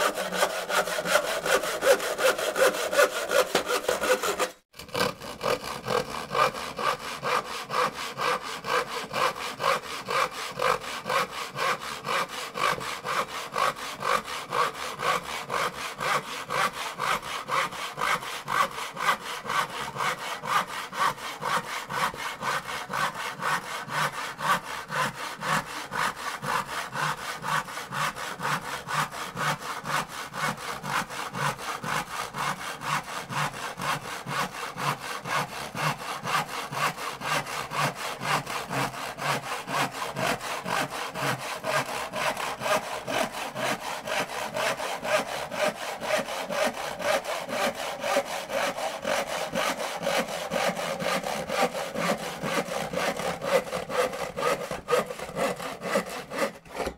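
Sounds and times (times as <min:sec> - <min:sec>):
hand saw cutting wood: 0:00.0 - 0:56.9.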